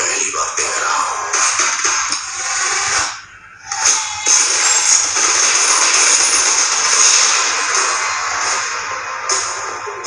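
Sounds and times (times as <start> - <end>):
hissing rush of sound effects: 2.3 - 10.0.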